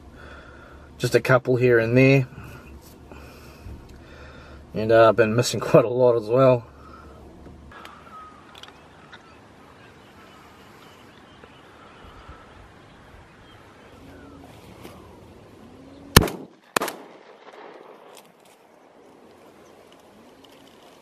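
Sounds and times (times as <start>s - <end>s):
faint outdoor background: 0.0s - 21.0s
shotgun shots: 16.1s - 18.4s.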